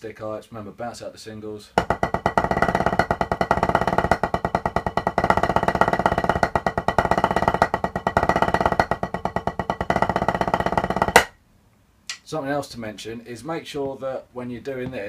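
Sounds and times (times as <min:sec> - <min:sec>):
drumsticks on practice pad: 0:01.8 - 0:11.4.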